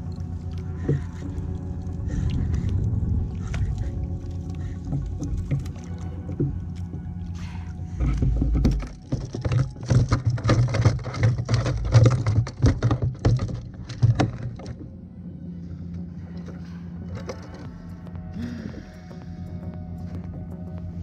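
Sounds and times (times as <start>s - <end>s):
fish thrashing on plastic deck: 7.9s - 14.8s.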